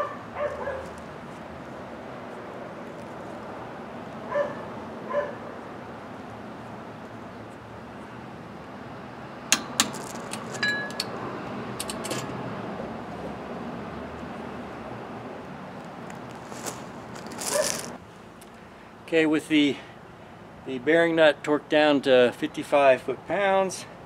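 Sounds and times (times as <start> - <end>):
dog barking: 0.0 - 0.9, 4.3 - 5.5
ringing metal clink: 10.6 - 11.1.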